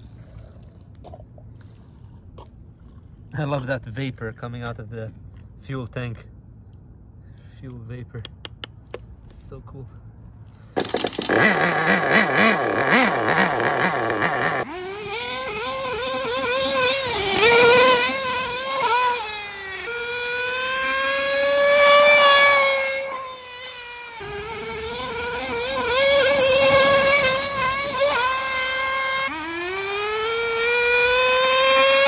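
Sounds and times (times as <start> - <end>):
nitro engine running: 10.8 - 32.0.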